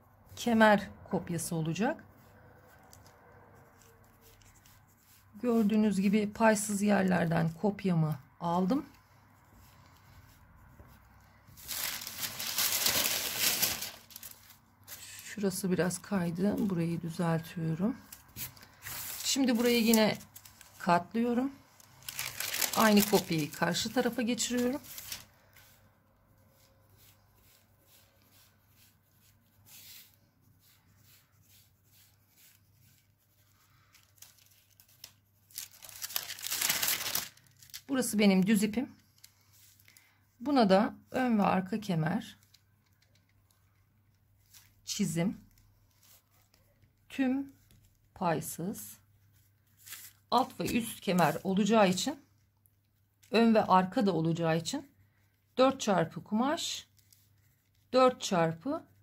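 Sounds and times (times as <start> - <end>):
thin paper rustling: 11.6 - 15.2, 18.0 - 20.9, 21.8 - 25.8, 26.6 - 37.9, 49.7 - 52.0
pencil scratching on paper: 26.6 - 33.4.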